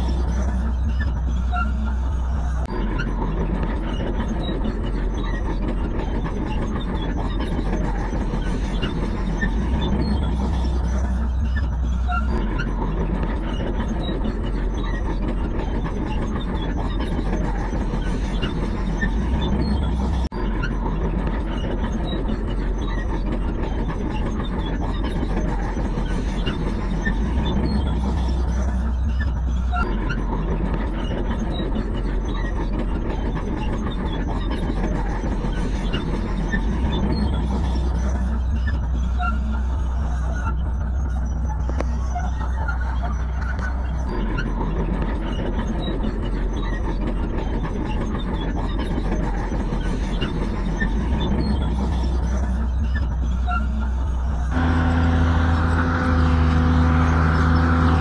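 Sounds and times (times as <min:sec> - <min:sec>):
diesel machinery engine rumble: 0:49.2 - 0:58.0.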